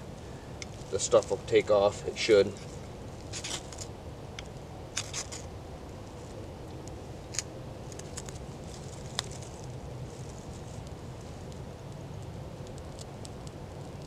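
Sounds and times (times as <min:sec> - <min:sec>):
steady low background noise: 0:00.0 - 0:14.0
ferro rod scraping: 0:02.5 - 0:03.9.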